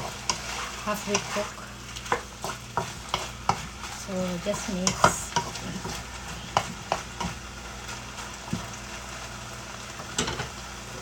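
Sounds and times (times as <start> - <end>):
spatula knocking and scraping pan: 0.0 - 8.7
chicken sizzling in a frying pan: 0.0 - 11.0.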